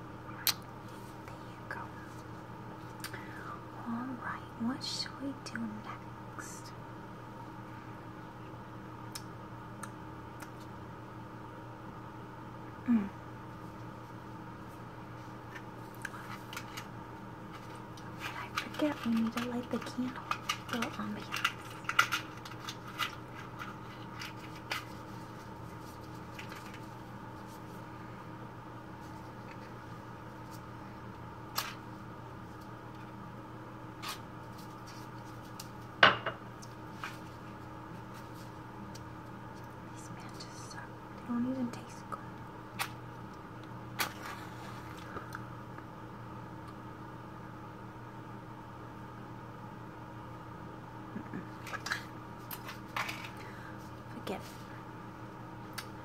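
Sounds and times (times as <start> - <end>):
faint steady hum: 0.0 - 56.0
small clicks and light scratches: 17.5 - 27.7.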